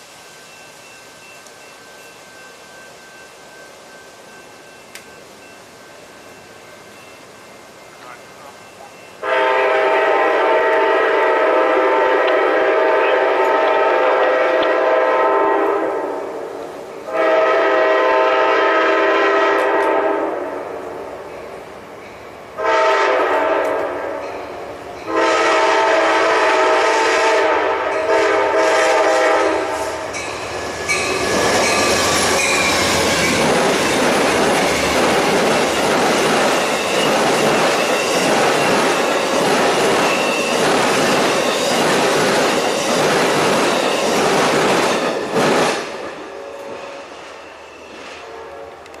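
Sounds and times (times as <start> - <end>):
train horn chord: 9.2 - 16.5, 17.1 - 21.0, 22.6 - 24.4, 25.0 - 30.2
train wheels clacking on rail joints: 30.1 - 46.0.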